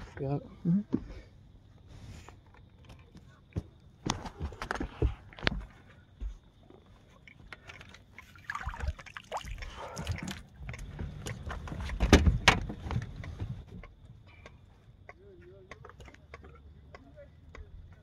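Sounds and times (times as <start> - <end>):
water splashing and dripping: 7.2 - 11.6
knocks and thumps on boat floor: 10.1 - 13.9.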